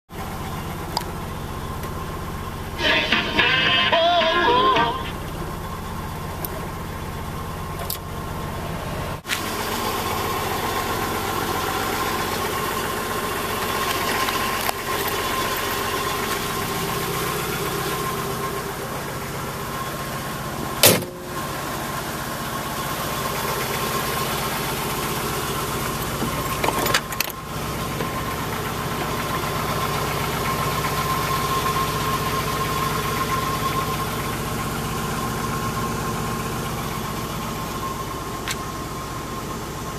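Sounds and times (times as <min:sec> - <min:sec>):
car engine idling: 0:00.1 - 0:39.9.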